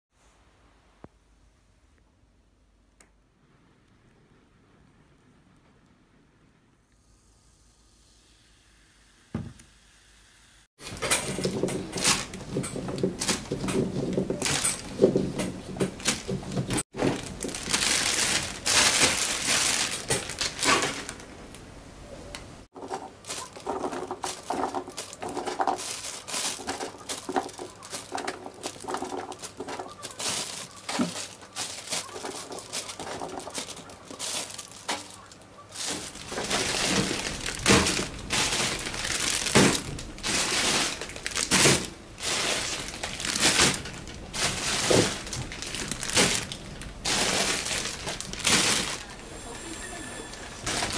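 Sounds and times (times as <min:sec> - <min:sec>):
plastic bags crinkling: 0:10.8 - 0:21.8, 0:22.7 - 0:49.8, 0:50.4 - 0:50.9.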